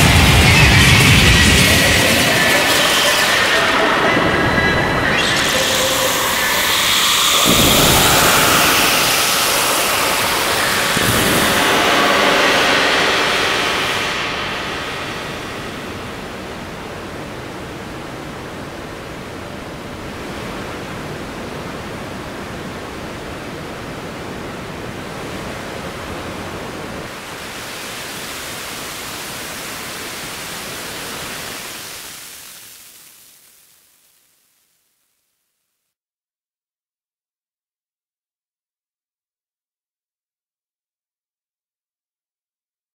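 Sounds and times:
electronic ambient rushing noise: 0.0s - 19.4s.

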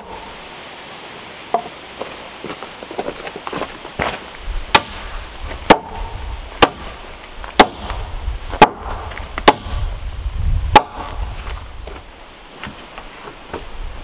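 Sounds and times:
hand tool striking log with ring: 5.7s - 6.9s, 8.6s - 9.8s.

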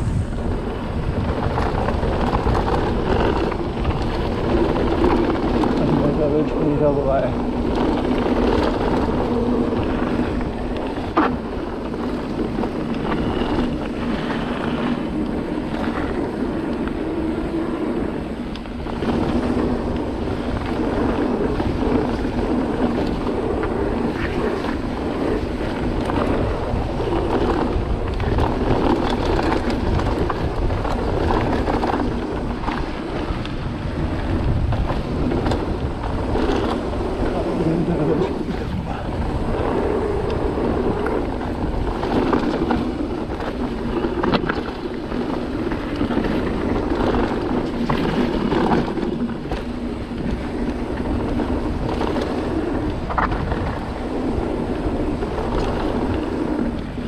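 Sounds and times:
bike rattling and knocking: 0.0s - 57.0s
tyre rumble: 0.0s - 57.0s
wind buffeting microphone: 0.0s - 57.0s.

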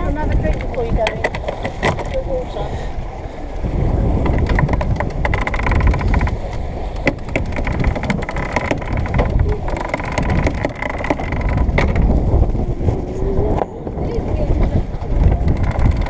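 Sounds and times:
water rushing along hull: 0.0s - 16.0s
wind buffeting microphone: 0.0s - 16.0s
rapid clicking and rattling: 4.2s - 12.1s, 15.3s - 16.0s.

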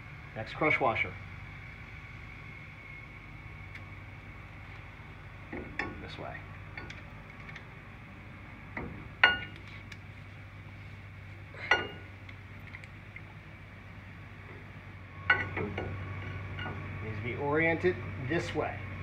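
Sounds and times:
steady low hum: 0.0s - 19.0s
metallic clinks of brake parts: 5.5s - 6.1s, 6.7s - 7.6s, 8.8s - 9.8s, 11.6s - 12.2s, 15.3s - 16.8s.

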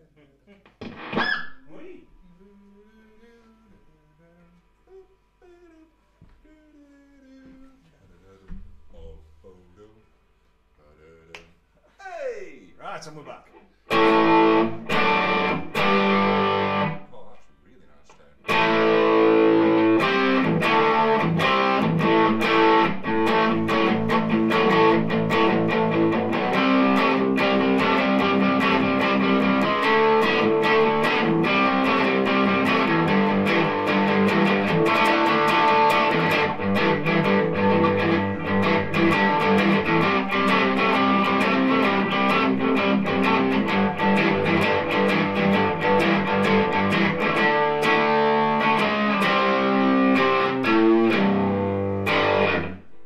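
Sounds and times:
distorted electric guitar riff: 0.8s - 1.6s, 13.9s - 17.0s, 18.4s - 53.0s.

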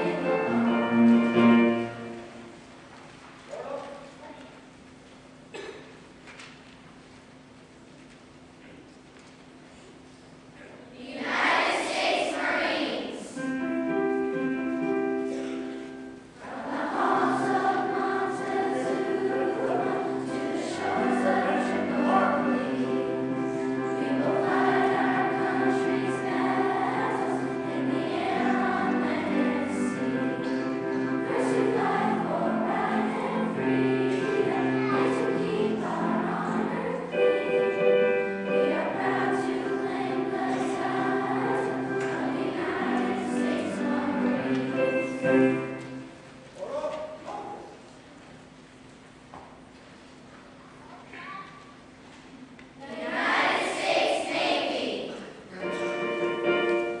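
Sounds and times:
chorus singing held notes: 0.0s - 2.6s, 15.6s - 46.2s, 52.8s - 57.0s.

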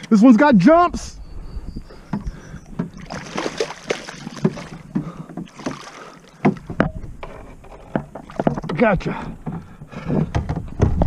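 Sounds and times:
knocks against kayak hull: 2.1s - 11.0s
fish splashing in water: 2.2s - 6.7s.

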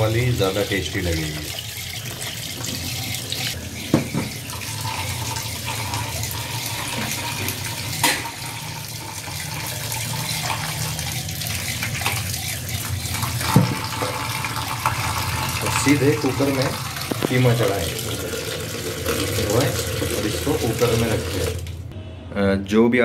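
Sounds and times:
tap running into steel sink: 13.4s - 15.0s.

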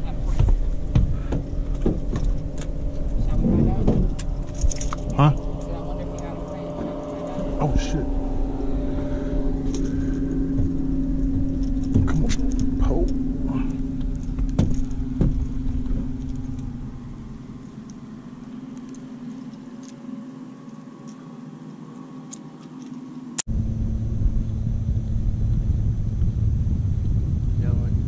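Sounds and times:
deep rumble: 0.0s - 19.3s, 23.4s - 28.0s
motor humming: 0.0s - 21.2s
knocks and clicks on boat: 14.0s - 16.8s.

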